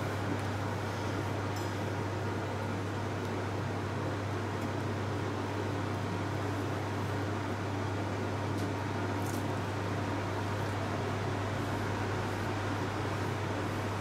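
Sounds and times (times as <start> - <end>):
electric fan hum: 0.0 - 14.0.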